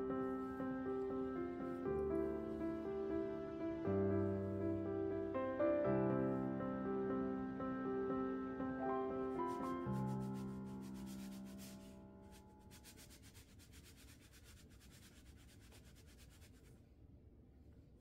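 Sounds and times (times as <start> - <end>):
piano music: 0.0 - 12.8
iron rubbing over fabric: 9.3 - 16.8.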